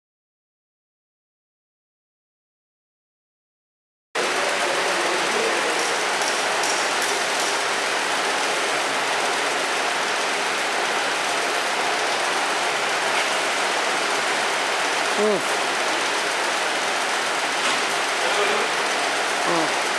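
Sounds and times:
vacuum pump running: 0:04.2 - 0:19.9.

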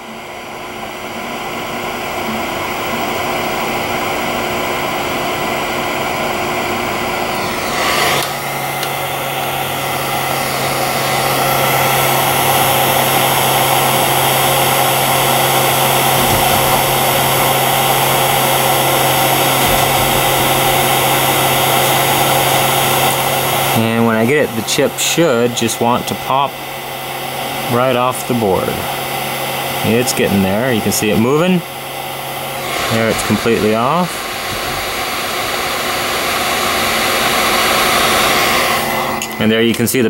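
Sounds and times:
heat gun blowing air: 0:00.0 - 0:39.6
low hum: 0:08.8 - 0:23.8.

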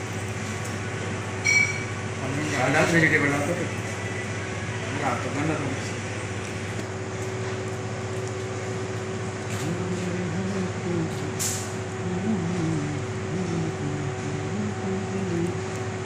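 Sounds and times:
low mechanical hum: 0:00.0 - 0:16.0
wavering voice-like tone: 0:09.6 - 0:11.4, 0:12.0 - 0:15.6.

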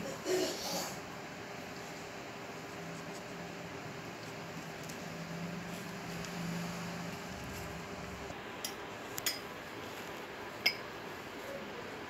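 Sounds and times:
glass bowls clinking on plate: 0:10.6 - 0:10.9.

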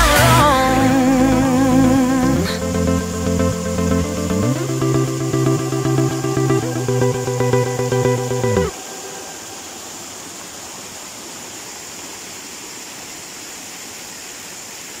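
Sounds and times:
background guitar music: 0:00.0 - 0:08.7
mountain stream splashing: 0:00.0 - 0:15.0.

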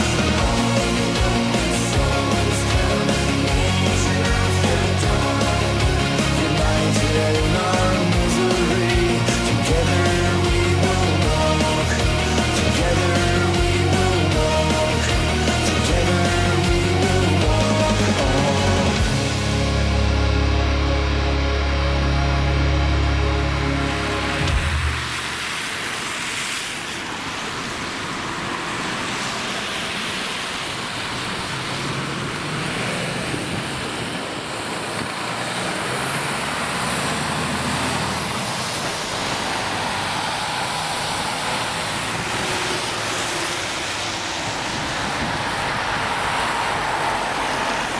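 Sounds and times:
truck diesel engine driving by: 0:00.0 - 0:47.9
tyres hissing through water: 0:24.9 - 0:33.9, 0:34.5 - 0:47.9.

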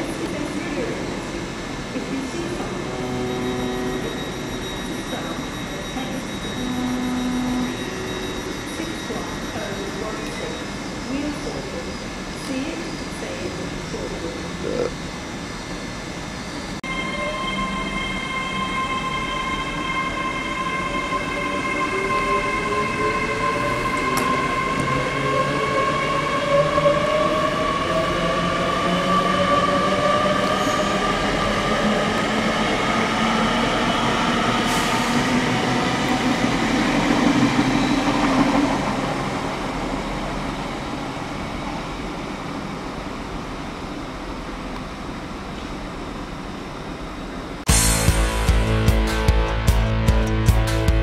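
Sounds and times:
electric train motors whining: 0:02.2 - 0:10.5.

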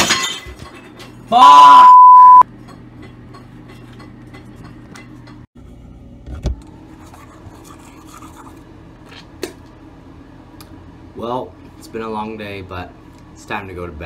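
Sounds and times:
censor bleep: 0:01.6 - 0:02.4.

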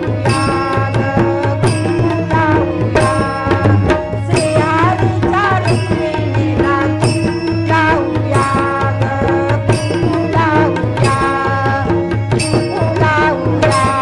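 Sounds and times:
hand drums playing rhythm: 0:00.0 - 0:14.0.

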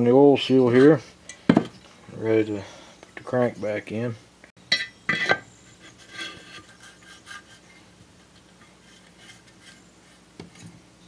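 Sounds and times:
metal clink: 0:04.7 - 0:05.4
metal rubbing and scraping: 0:05.1 - 0:10.8.

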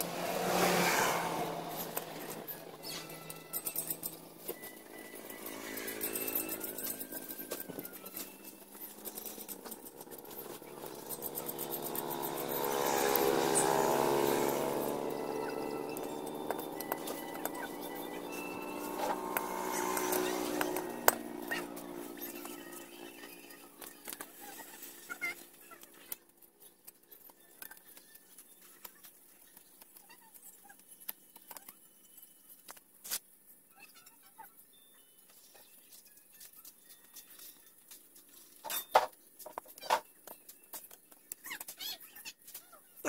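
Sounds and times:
vehicle engine running: 0:00.0 - 0:25.9.

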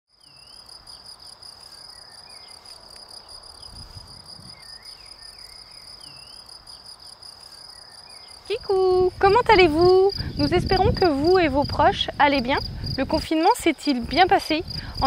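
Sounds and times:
cricket trilling: 0:00.1 - 0:15.0
bird chirps: 0:00.2 - 0:08.5.

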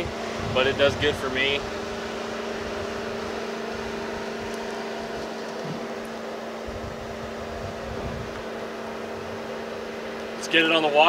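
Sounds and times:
mechanical hum: 0:00.0 - 0:11.0.

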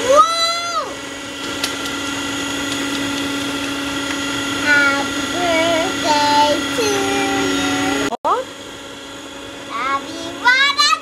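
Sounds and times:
electric hand mixer running: 0:00.0 - 0:11.0
beaters whisking batter: 0:01.4 - 0:08.1.

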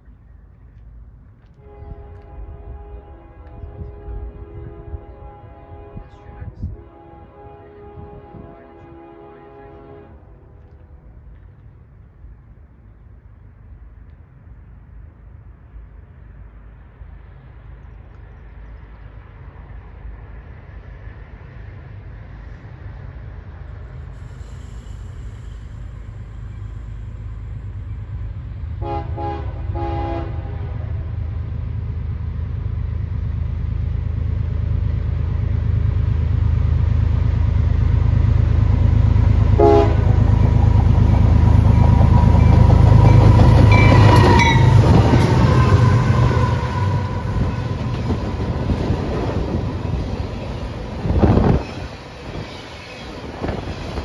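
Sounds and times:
diesel locomotive engine rumble: 0:00.0 - 0:54.0
locomotive horn blasts: 0:01.5 - 0:10.6, 0:28.8 - 0:31.2, 0:39.5 - 0:40.5, 0:42.4 - 0:48.2
freight cars clickety-clack: 0:38.2 - 0:54.0.

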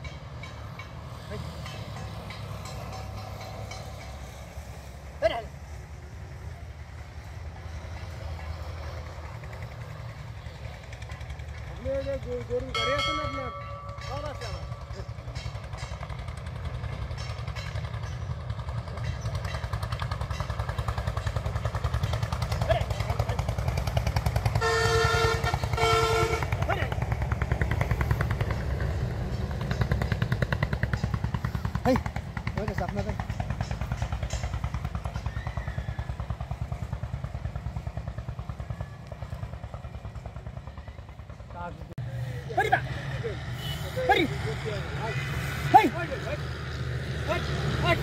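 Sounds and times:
engine idling: 0:00.0 - 0:48.0.

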